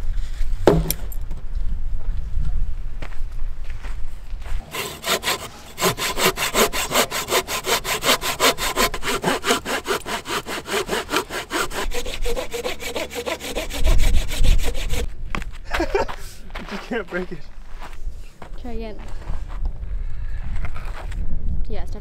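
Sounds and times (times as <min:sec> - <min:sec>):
dull low thump: 0:00.6 - 0:01.4
hand saw cutting wood: 0:04.6 - 0:15.1.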